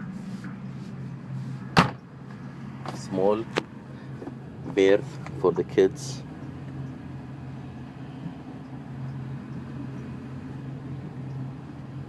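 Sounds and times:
low machinery hum: 0.0 - 12.0.

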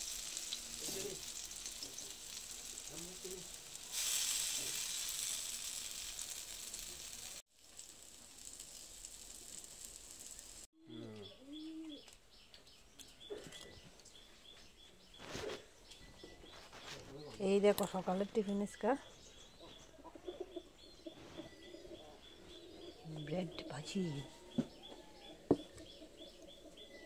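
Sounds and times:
small birds chirping: 0.0 - 3.9, 8.4 - 27.0
bread sizzling in oil: 0.0 - 10.7
pigeon cooing: 10.8 - 12.1.

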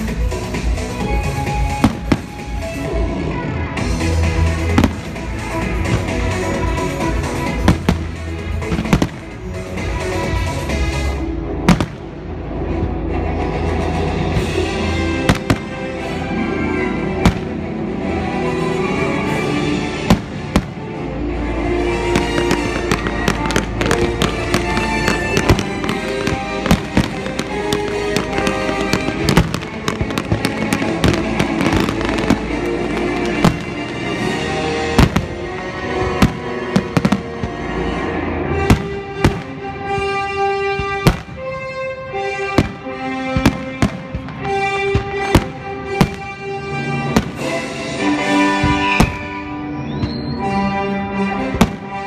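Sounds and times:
music playing: 0.0 - 52.0
firework shells bursting: 22.1 - 37.6.

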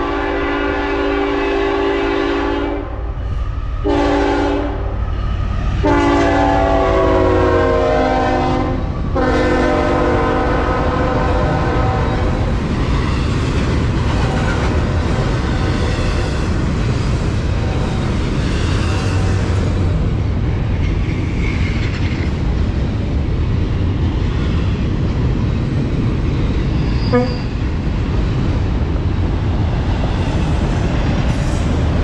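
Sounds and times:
locomotive air horn blasts: 0.0 - 3.0, 3.8 - 5.0, 5.8 - 12.3, 27.1 - 27.5
train wheels rumbling and clattering: 0.0 - 32.0.

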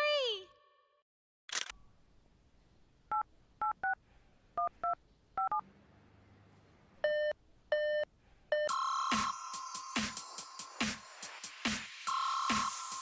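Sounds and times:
electronic music: 8.7 - 13.0.

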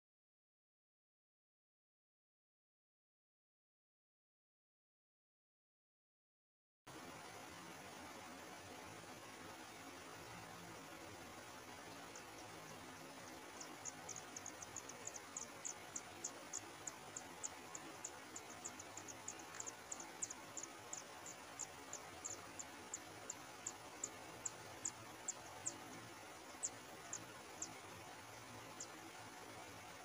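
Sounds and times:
faint steady hiss: 6.9 - 30.0
nestlings chirping: 12.1 - 29.0.

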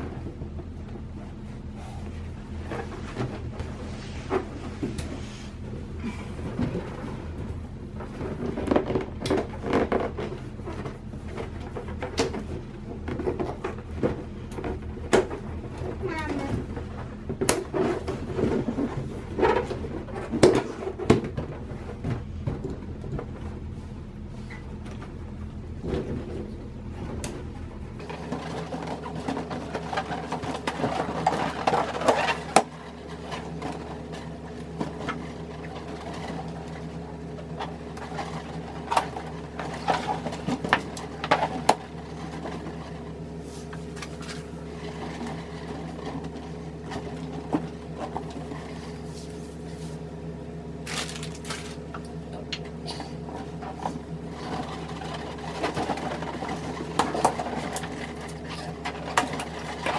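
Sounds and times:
steady background hum: 0.0 - 59.9
rubbery balloon squeaks and rubs: 15.9 - 16.8.

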